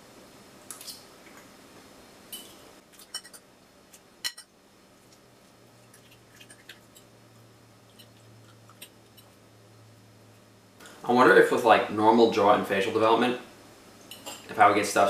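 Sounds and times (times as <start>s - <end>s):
fork clinking on ceramic plate: 2.4s - 3.4s, 4.2s - 4.5s.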